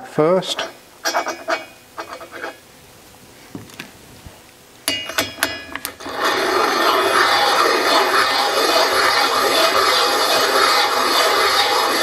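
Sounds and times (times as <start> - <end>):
steel tools clinking: 4.9 - 5.9
loud steady noise: 4.9 - 12.0.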